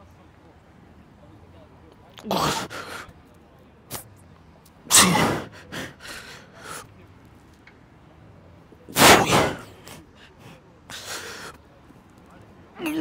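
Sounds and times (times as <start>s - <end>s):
man breathing forcefully: 5.1s - 6.8s.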